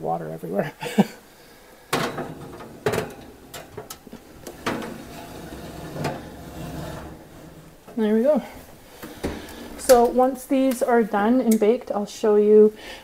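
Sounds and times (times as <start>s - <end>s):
metal pan knocks and scrapes: 1.9s - 7.9s.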